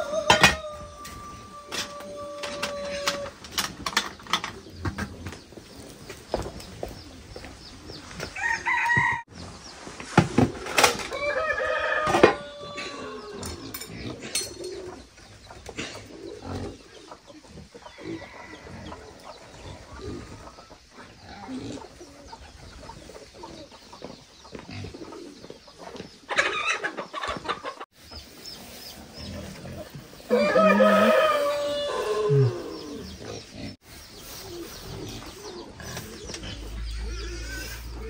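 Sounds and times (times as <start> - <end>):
rooster crowing: 0.0 - 3.3, 8.4 - 9.3, 11.1 - 13.5, 30.3 - 33.1
chickens clucking: 0.0 - 38.0.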